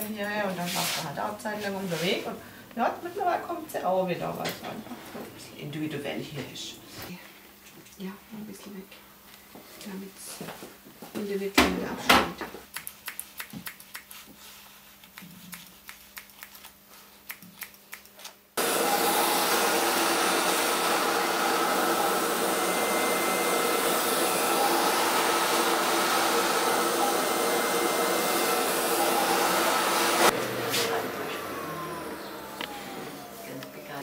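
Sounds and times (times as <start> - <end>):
hair dryer running: 18.6 - 34.0.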